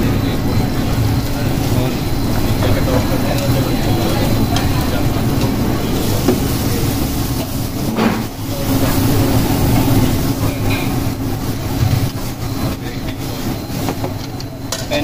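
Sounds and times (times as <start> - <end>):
vegetables sizzling in a pan: 3.4 - 12.2.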